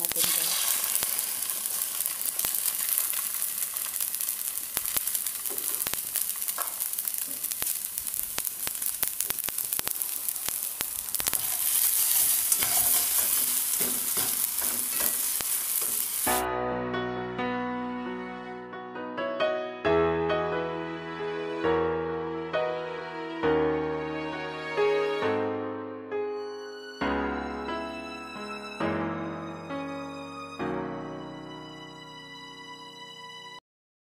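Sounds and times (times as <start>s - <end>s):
rice sizzling in hot oil: 0.0s - 16.4s
spatula clicking and scraping: 8.4s - 16.2s.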